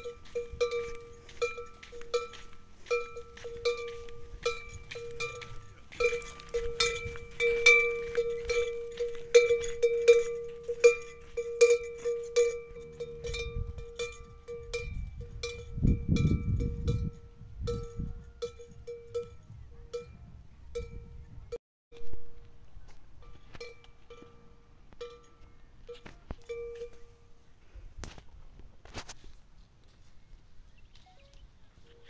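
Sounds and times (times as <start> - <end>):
camel bell clanking: 0.0 - 21.4, 23.2 - 27.4.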